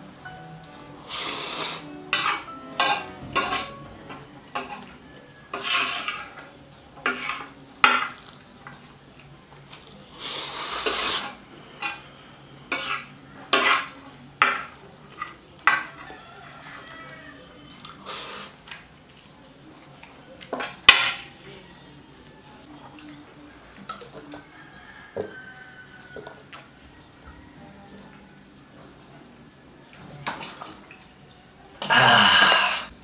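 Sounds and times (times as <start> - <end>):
cutlery clinking on plate: 2.1 - 8.4, 12.7 - 17.0.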